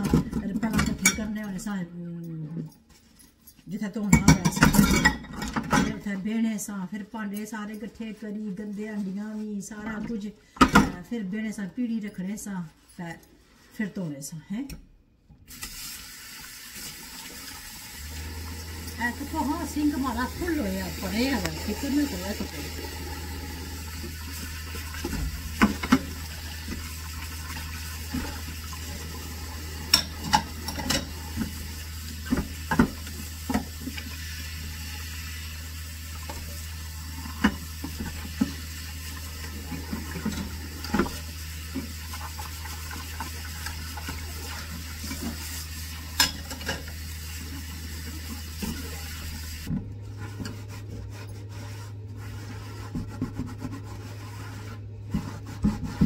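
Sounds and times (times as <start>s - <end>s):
dishes clinking: 4.1s - 6.0s, 29.9s - 31.2s
sponge scrubbing a plate: 7.8s - 10.0s, 18.8s - 46.2s, 47.3s - 56.0s
tap water running into sink: 15.5s - 49.8s.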